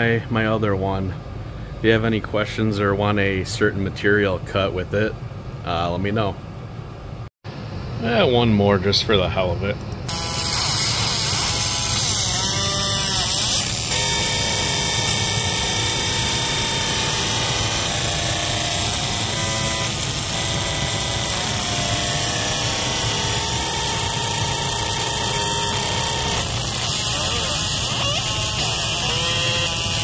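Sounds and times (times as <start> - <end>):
laser scanner whining: 10.1 - 30.0.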